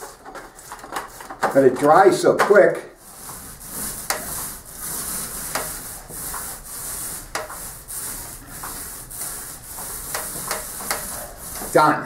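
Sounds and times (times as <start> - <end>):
paint roller rubbing on ceiling: 0.0 - 12.0.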